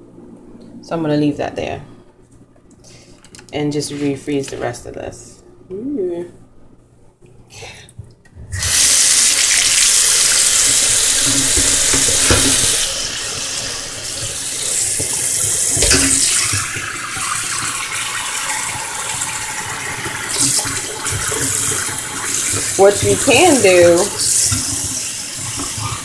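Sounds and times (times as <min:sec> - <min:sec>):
tap running into steel sink: 0:11.1 - 0:13.0, 0:14.7 - 0:17.7
knocks against sink: 0:11.2 - 0:12.7.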